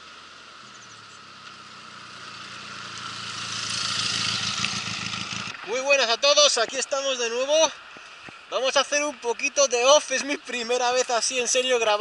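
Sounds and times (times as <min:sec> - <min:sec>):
motorcycle engine passing: 0:00.6 - 0:06.2.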